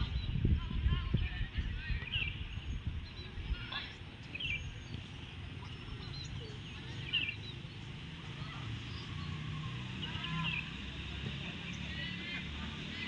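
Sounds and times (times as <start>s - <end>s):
wind rumbling on microphone: 0.0s - 10.6s
high chirping calls: 1.1s - 10.9s.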